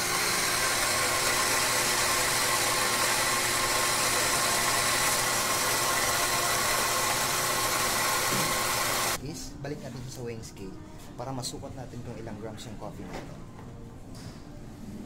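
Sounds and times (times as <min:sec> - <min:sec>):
coffee grinder whirring: 0:00.0 - 0:09.2.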